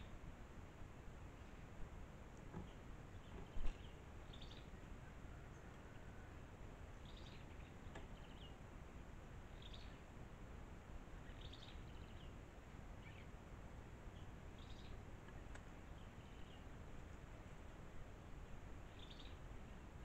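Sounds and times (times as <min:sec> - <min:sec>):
steady low hiss: 0:00.0 - 0:20.0
faint bird chirps: 0:09.5 - 0:10.1, 0:11.2 - 0:12.4, 0:18.8 - 0:19.8.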